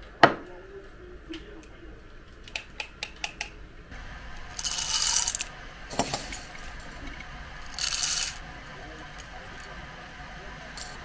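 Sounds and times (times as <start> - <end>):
coffee beans rattling into grinder: 4.4 - 9.7, 10.8 - 11.0.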